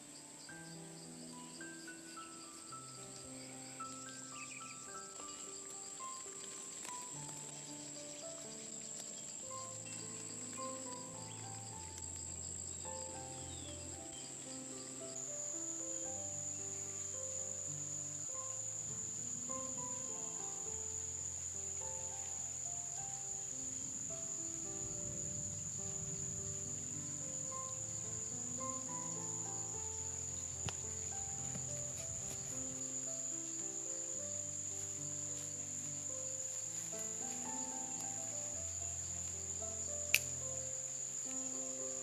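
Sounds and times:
insects buzzing: 0.0 - 42.0
soft background music: 0.0 - 42.0
sharp click: 40.1 - 40.4.

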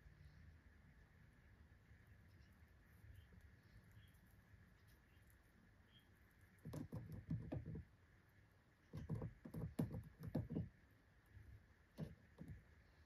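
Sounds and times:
guinea pigs scuffling and thumping: 1.8 - 12.8.

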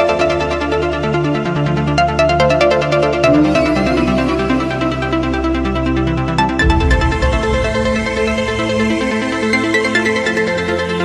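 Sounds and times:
held low synth tone: 6.4 - 9.9.

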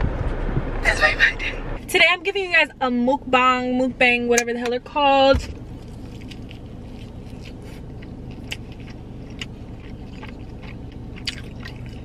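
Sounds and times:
low hum: 0.0 - 12.0
chewing crunchy food: 5.8 - 12.0.

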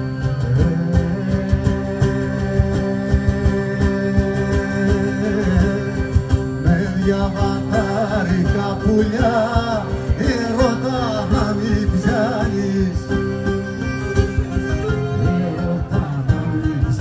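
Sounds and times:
folk music on plucked strings: 0.0 - 17.0
man singing: 0.0 - 17.0.

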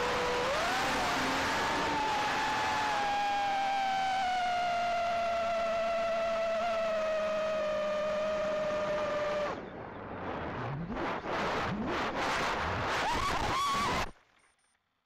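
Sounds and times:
drone motor revs: 0.0 - 9.6
drone motors whining: 0.0 - 9.7.

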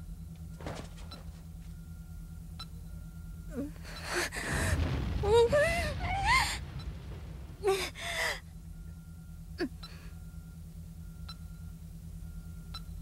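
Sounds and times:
woman crying out: 5.2 - 6.6, 7.6 - 8.4
woman gasping for breath: 7.6 - 8.5
faint electronic tone: 8.6 - 13.0.

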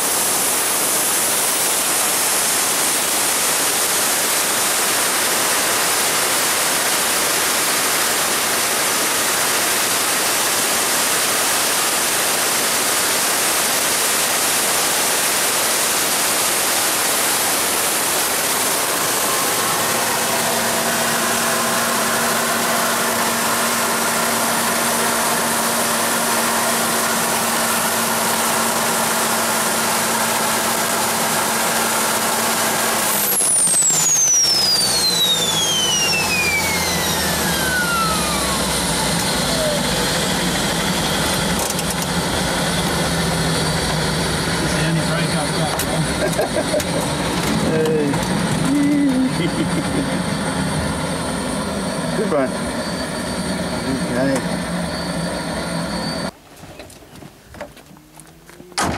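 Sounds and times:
gas turbine engine roaring: 0.0 - 56.4.

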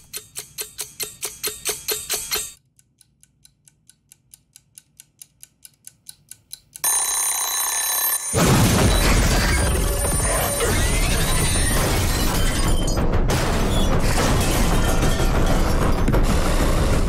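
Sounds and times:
egg timer ticking: 0.0 - 7.4
timer bell ringing: 6.8 - 8.4
loud crash: 8.4 - 17.0
dramatic music: 9.6 - 17.0.

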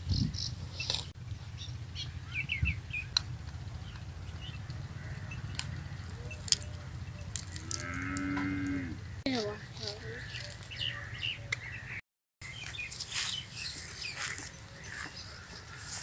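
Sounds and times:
low steady rumble: 0.0 - 11.1
small birds chirping: 0.0 - 16.0
water buffalo mooing: 7.4 - 9.1.

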